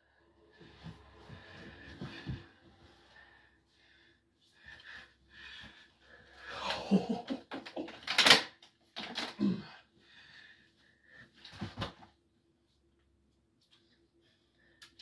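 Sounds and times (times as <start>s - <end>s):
man breathing heavily: 0.0s - 6.9s, 9.5s - 11.6s.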